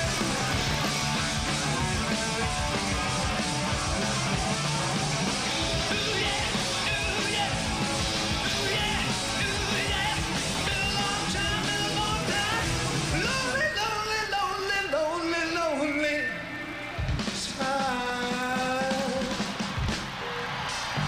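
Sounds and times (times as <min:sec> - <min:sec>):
hard rock band playing: 0:00.0 - 0:15.2, 0:16.9 - 0:21.0
man singing: 0:05.8 - 0:19.4.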